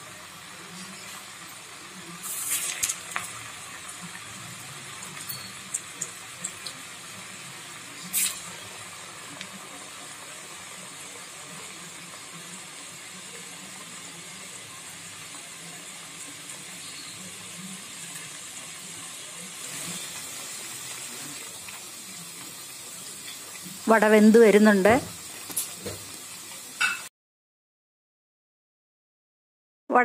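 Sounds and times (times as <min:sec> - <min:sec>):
fritters deep-frying in oil: 0:00.0 - 0:27.1.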